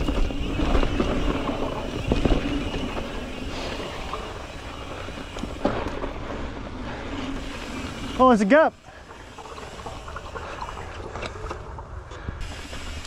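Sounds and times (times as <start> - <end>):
bike knocking over bumps: 0.0 - 3.4, 5.2 - 6.6
tyres rolling on dirt: 0.0 - 13.0.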